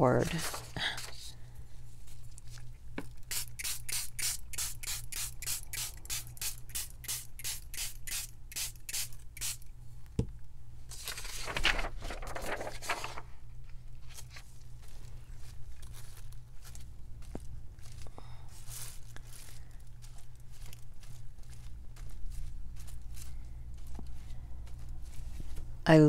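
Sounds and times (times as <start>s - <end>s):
spray bottle hissing: 3.3s - 9.6s.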